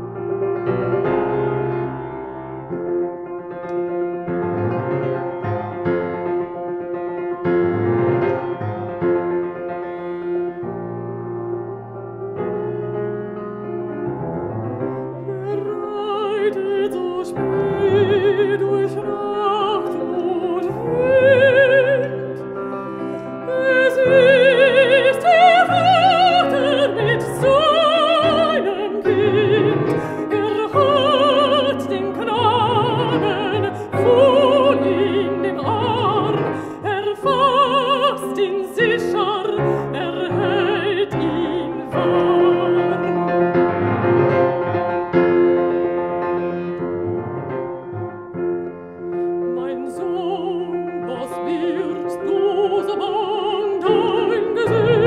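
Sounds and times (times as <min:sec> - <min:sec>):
piano accompaniment: 0:00.0 - 0:55.0
woman singing operatically: 0:15.2 - 0:43.3, 0:49.5 - 0:55.0.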